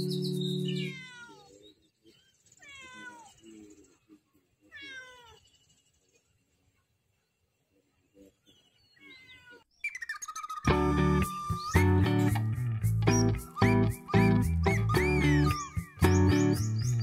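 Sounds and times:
cat meowing: 0.7s - 1.6s, 2.6s - 3.4s, 4.7s - 5.4s, 9.0s - 9.7s
background music: 10.6s - 17.0s.

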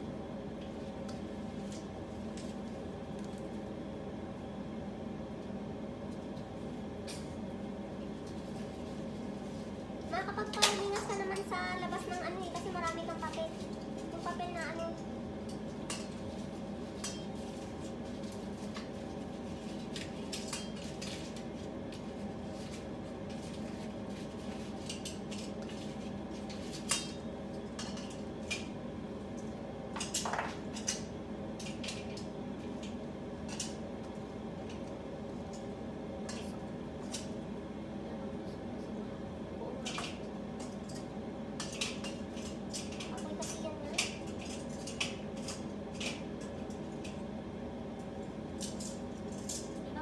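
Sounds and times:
steady hum: 0.0s - 50.0s.

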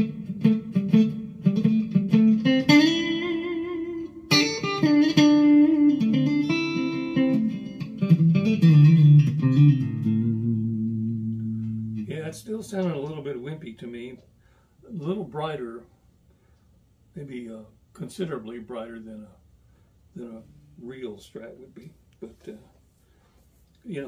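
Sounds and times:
electric guitar notes and chords: 0.0s - 13.0s.

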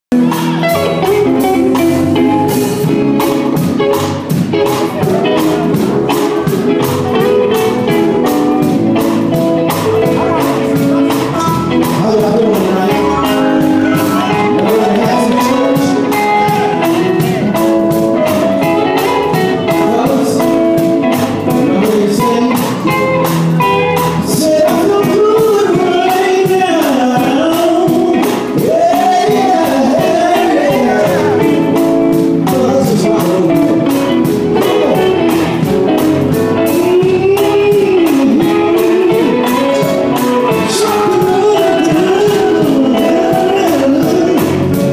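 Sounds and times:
electric guitar: 0.1s - 44.9s
steady beat: 0.1s - 44.9s
male group singing gospel: 9.8s - 18.0s, 19.5s - 22.8s, 24.2s - 35.7s, 36.7s - 44.9s.

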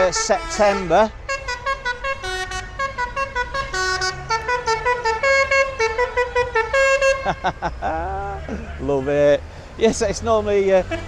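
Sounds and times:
musical van horn playing tune: 0.0s - 7.6s.

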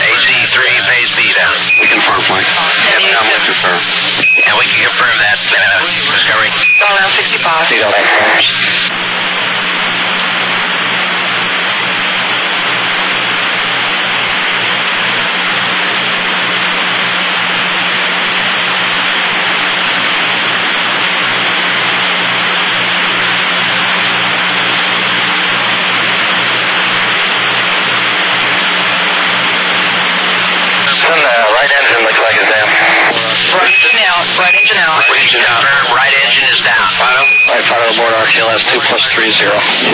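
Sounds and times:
radio channel hiss: 0.0s - 8.9s, 28.1s - 39.9s
low steady hum: 0.0s - 39.9s.

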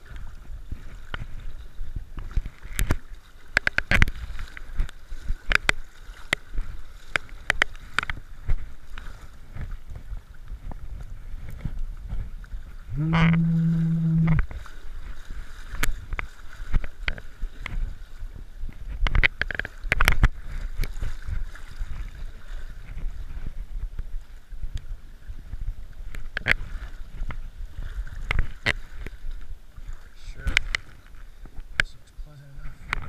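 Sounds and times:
water splashing and sloshing: 0.0s - 33.0s
low droning tone: 12.9s - 14.6s.

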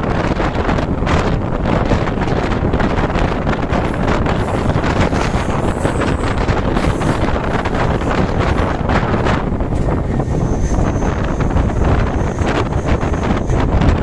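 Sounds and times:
train running rumble: 0.0s - 14.0s
wind buffeting microphone: 0.0s - 14.0s.

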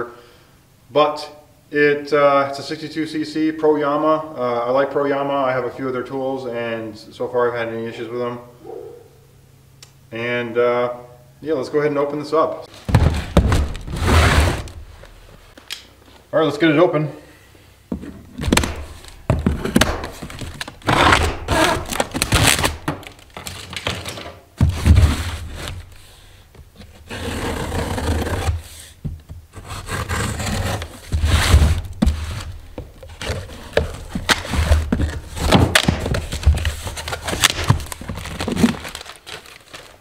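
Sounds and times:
cardboard scraping and rustling: 12.7s - 15.5s, 17.9s - 26.1s, 26.8s - 40.0s
cardboard box thunking: 12.8s - 14.9s, 31.0s - 39.8s.

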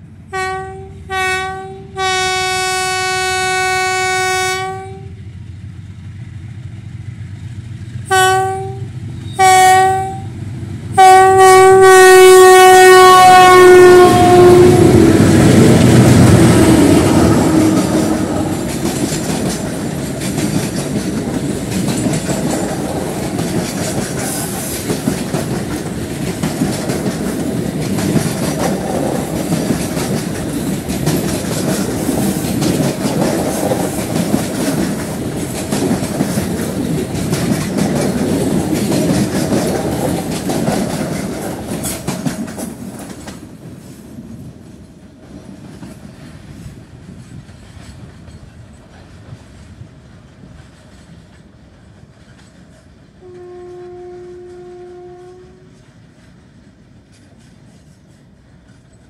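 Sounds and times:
freight train rumble: 0.0s - 59.0s
wheels clattering over rail joints: 17.6s - 43.5s.

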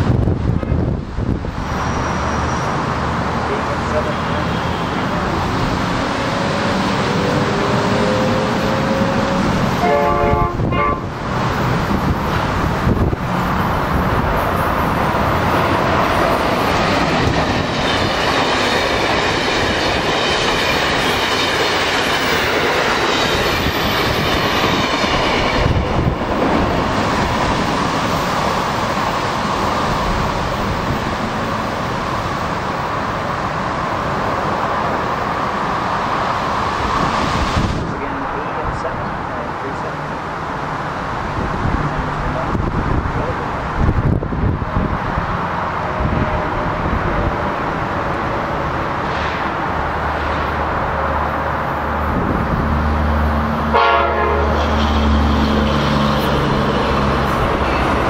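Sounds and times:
rail clickety-clack: 0.0s - 58.0s
train passing at speed: 0.0s - 58.0s
train horn blast: 9.8s - 11.1s, 53.7s - 54.8s.

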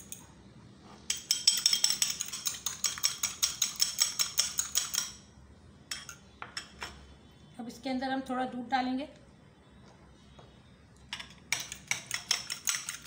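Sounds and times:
fork beating egg in bowl: 1.1s - 5.2s, 11.2s - 13.0s.

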